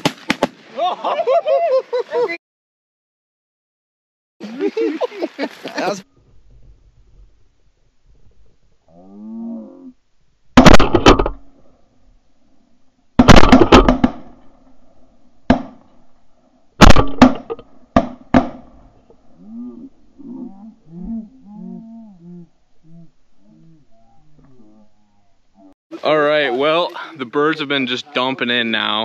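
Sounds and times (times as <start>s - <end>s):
shotgun shots: 10.6s - 11.4s, 13.2s - 14.4s, 16.8s - 18.7s.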